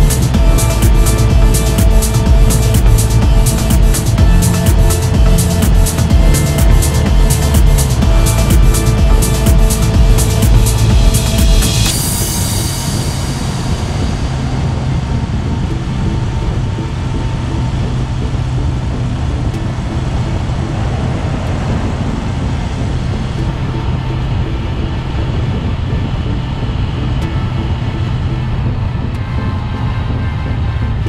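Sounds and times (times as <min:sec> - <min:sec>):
motorcycle engine cruising: 0:00.0 - 0:31.0
wind and road noise: 0:00.0 - 0:31.0.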